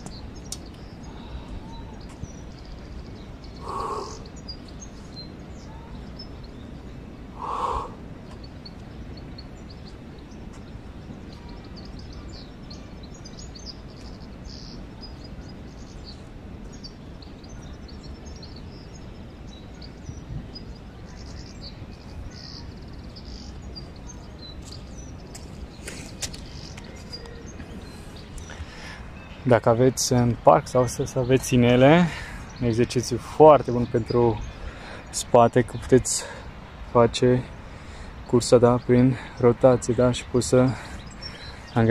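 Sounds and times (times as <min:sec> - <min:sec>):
small birds chirping faintly: 0:00.0 - 0:41.9
crow calling: 0:03.6 - 0:04.4, 0:07.4 - 0:08.0.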